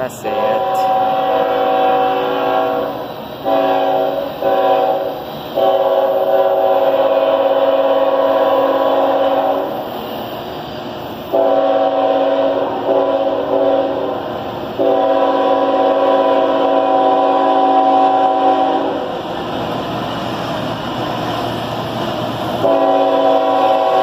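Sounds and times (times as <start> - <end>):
locomotive engine and wheel noise: 0.0 - 2.1, 6.6 - 11.4, 16.9 - 24.0
train air horn blasting: 0.2 - 9.7, 11.3 - 14.2, 14.8 - 19.2, 22.6 - 24.0.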